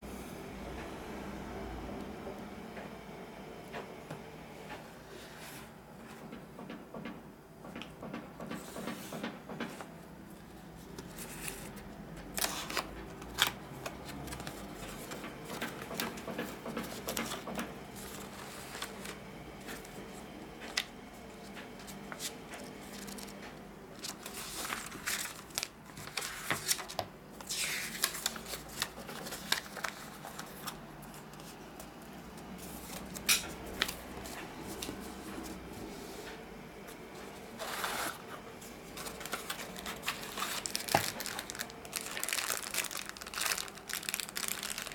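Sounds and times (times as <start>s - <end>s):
paper rustling: 10.8s - 20.9s, 21.7s - 31.6s, 37.2s - 44.9s.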